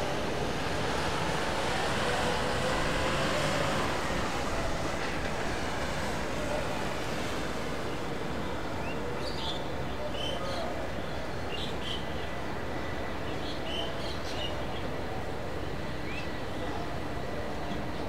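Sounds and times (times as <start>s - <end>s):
distant jet engines rumbling: 0.0s - 11.0s
faint wavering engine whine: 0.0s - 18.0s.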